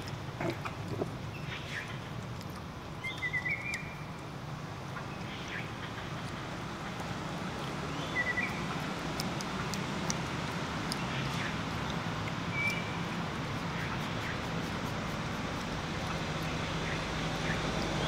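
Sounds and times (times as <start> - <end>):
steady low hum: 3.8 - 18.0.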